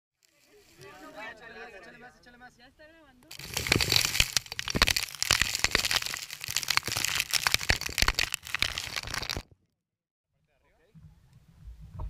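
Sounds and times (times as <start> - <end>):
crackling and crinkling on microphone: 0.2 - 1.3, 3.2 - 9.6.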